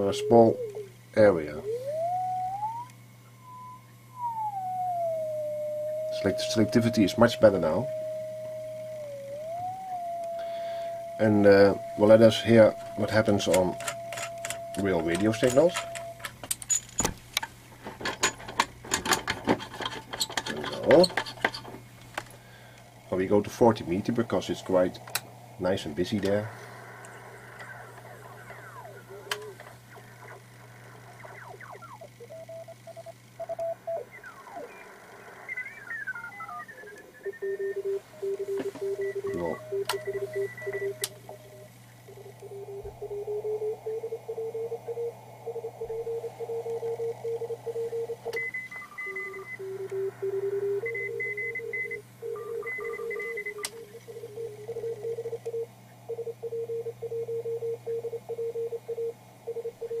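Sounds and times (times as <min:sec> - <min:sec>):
radio tuning tones gliding in pitch: 0:00.0 - 0:16.3, 0:22.5 - 0:55.0
steady low hum: 0:00.0 - 1:00.0
morse code tone: 0:01.6 - 0:16.3, 0:31.4 - 1:00.0
faint higher-pitched morse code: 0:03.6 - 0:16.3, 0:31.2 - 1:00.0.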